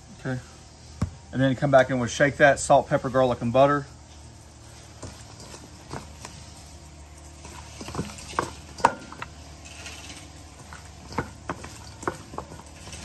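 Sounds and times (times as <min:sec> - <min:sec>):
wings knocking against metal bowl: 0:10.6 - 0:13.0.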